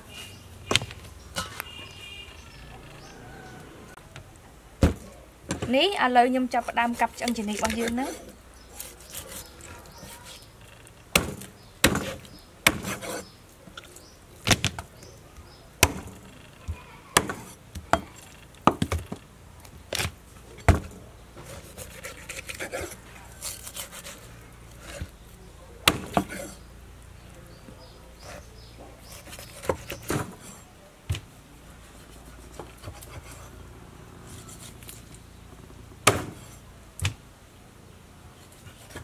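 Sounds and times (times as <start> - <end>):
knife chopping onto wooden block: 11.1 - 13.2, 15.8 - 16.2, 17.2 - 18.1, 25.8 - 26.4, 36.0 - 37.2.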